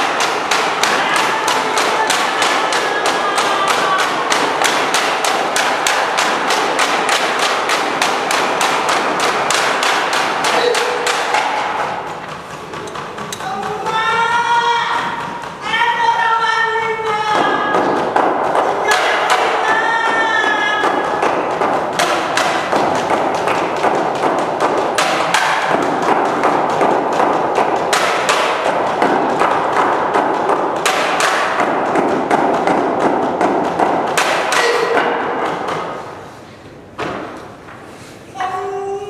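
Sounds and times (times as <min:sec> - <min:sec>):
fast frame drum playing: 0:00.0 - 0:35.7
person wailing: 0:34.6 - 0:35.1.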